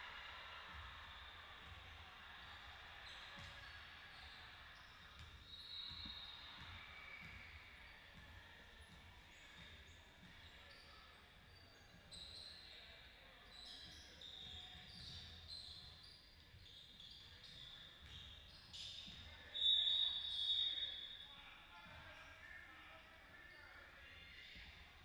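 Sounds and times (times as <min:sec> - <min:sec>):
basketball bouncing on court: 0:00.7 - 0:12.7, 0:17.4 - 0:19.3
sneakers squeaking: 0:02.4 - 0:21.2.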